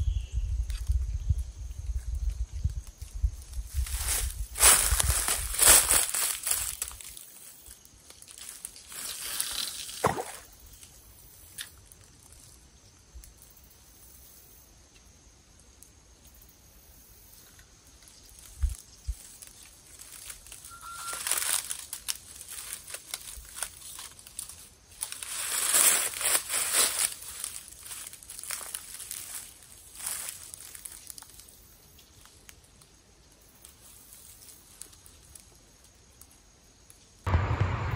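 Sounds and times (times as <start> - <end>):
rustling in dry leaves: 1.8 - 11.1, 17.9 - 36.0.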